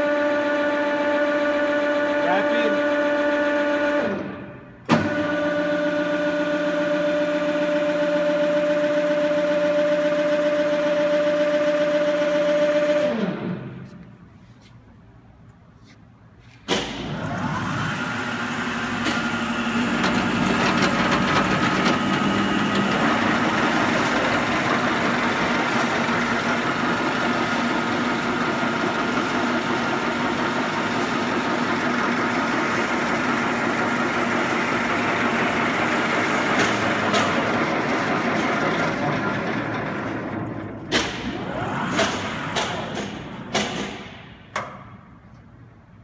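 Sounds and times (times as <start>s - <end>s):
surface grinder motors running: 17.2s - 43.4s.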